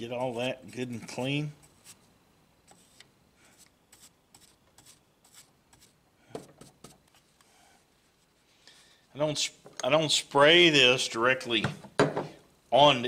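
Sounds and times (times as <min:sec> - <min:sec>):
paintbrush scratching plastic: 0:00.0 - 0:02.1, 0:02.7 - 0:06.0.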